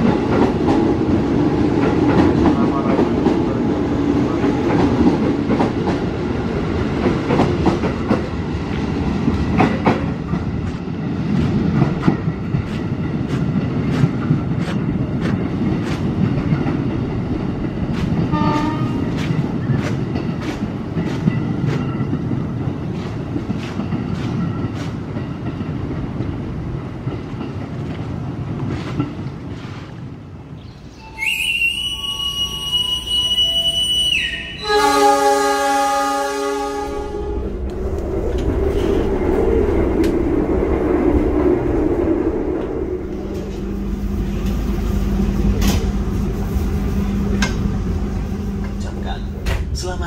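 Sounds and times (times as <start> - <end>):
train wheels rumbling on rail: 0.0 - 50.0
train horn: 18.3 - 19.1, 31.0 - 37.5.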